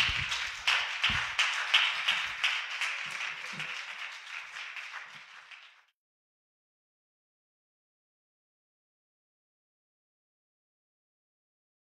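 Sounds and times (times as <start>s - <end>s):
congregation applauding: 0.0s - 5.9s.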